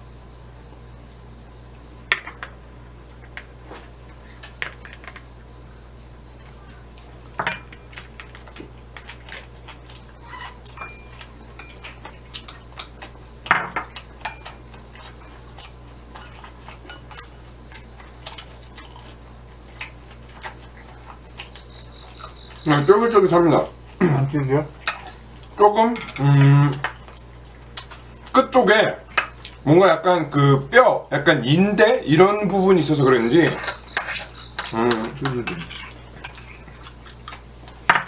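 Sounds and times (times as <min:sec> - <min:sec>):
chopsticks clinking on dish: 0:10.7 - 0:13.0, 0:33.4 - 0:36.6.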